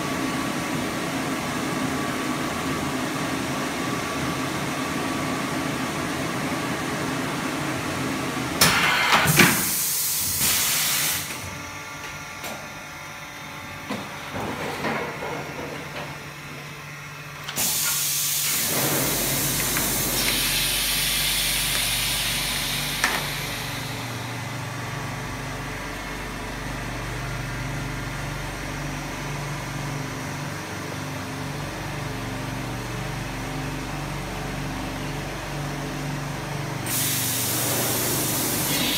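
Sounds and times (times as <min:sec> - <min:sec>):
air hissing: 0:08.7 - 0:11.4, 0:17.5 - 0:24.3, 0:36.9 - 0:38.9
machine humming: 0:09.7 - 0:26.3.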